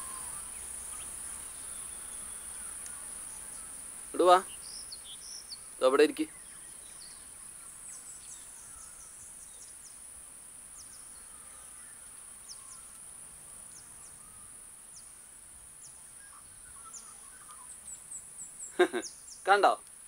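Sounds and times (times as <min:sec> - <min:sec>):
high-pitched insect drone: 0:00.0 - 0:03.9.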